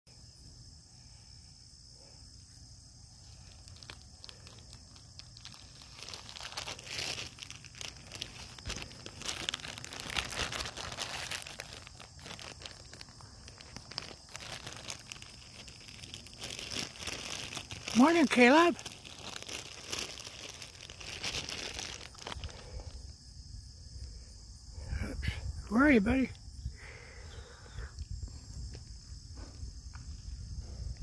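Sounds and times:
crinkly rustling and crackling: 3.1 - 23.0.

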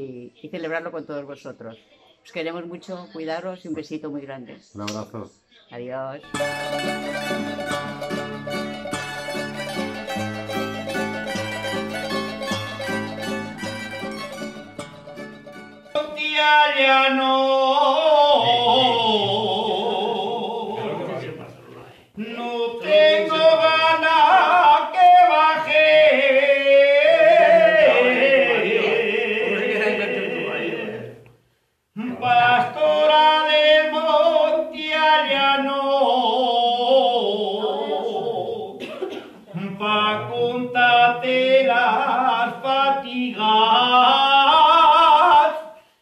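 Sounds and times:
man singing: 15.9 - 21.2, 22.2 - 31.2, 32.0 - 38.8, 39.5 - 45.8.

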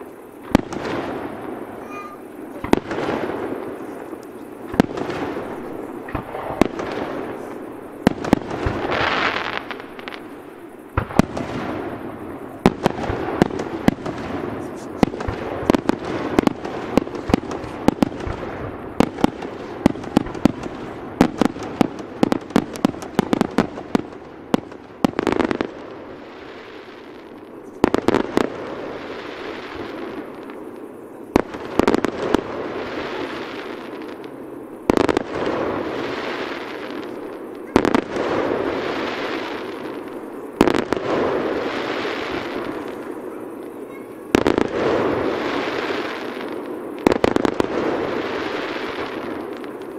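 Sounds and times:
firework shell bursts crackling: 0.0 - 23.9
fireworks bangs: 0.0 - 49.9.

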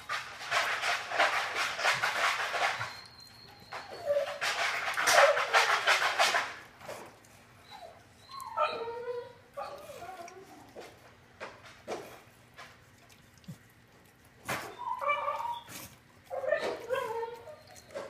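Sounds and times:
dog licking and chewing: 9.6 - 18.0.

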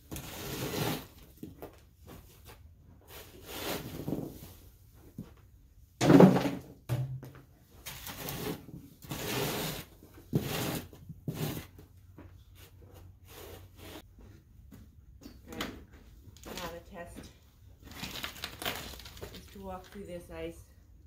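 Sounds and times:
ice crunching and scraping: 17.9 - 20.1.

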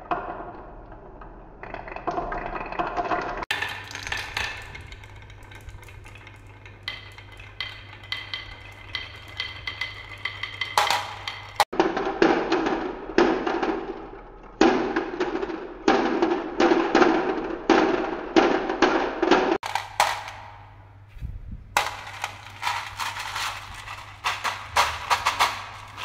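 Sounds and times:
marbles rolling on wooden track: 0.0 - 12.8, 15.3 - 20.7, 21.8 - 26.0
marbles clacking together: 3.5 - 11.7, 21.8 - 26.0.

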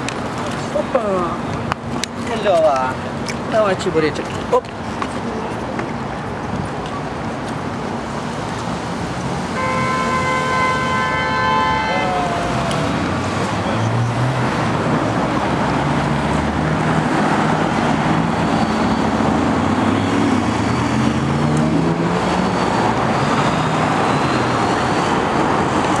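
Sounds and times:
city traffic passing: 0.0 - 26.0.

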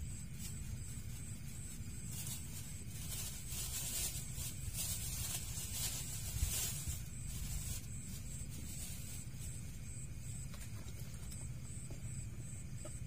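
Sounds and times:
plastic bag crinkling: 0.4 - 9.8.

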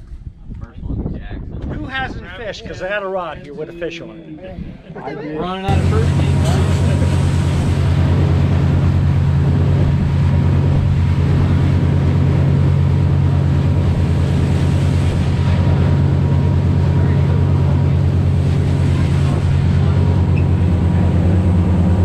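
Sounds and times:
wind buffeting microphone: 0.0 - 3.5, 4.5 - 22.0
water rushing along hull: 5.4 - 22.0
boat engine humming: 5.7 - 22.0.

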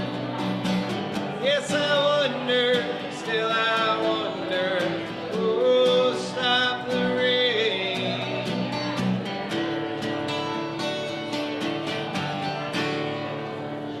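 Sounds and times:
acoustic guitar strumming: 0.0 - 14.0.

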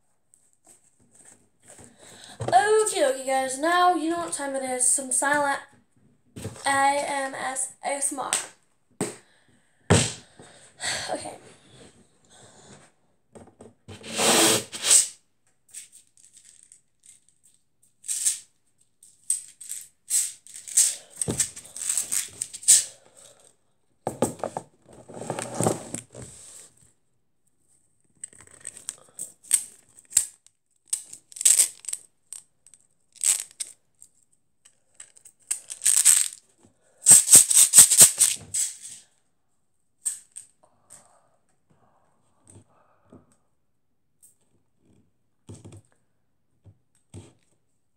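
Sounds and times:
plastic pins rattling and clicking: 28.4 - 33.7, 35.0 - 36.4.

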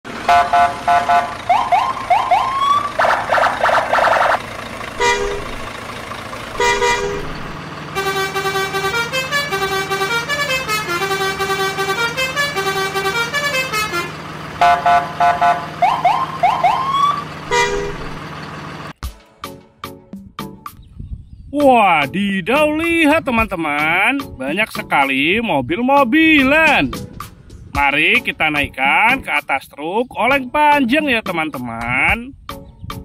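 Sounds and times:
stepping tune of horn notes: 0.2 - 5.8, 6.5 - 18.2
electronic horn beeps: 0.3 - 1.4, 5.0 - 5.6, 6.6 - 7.4, 8.0 - 18.2
siren-like whoops: 1.5 - 4.4, 15.8 - 17.2.

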